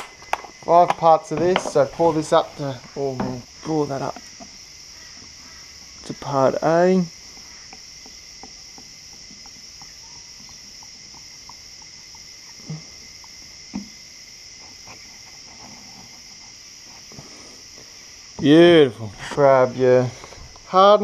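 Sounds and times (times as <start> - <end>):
insects chirring: 0.0 - 21.0
faint ticks: 4.0 - 17.0.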